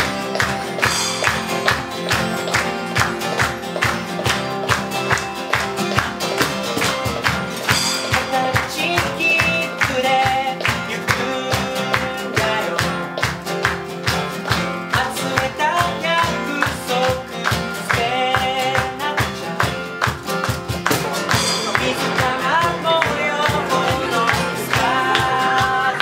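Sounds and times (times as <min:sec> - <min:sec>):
strummed acoustic guitars: 0:00.0 - 0:26.0
person singing: 0:07.7 - 0:13.3, 0:14.9 - 0:19.9, 0:20.8 - 0:26.0.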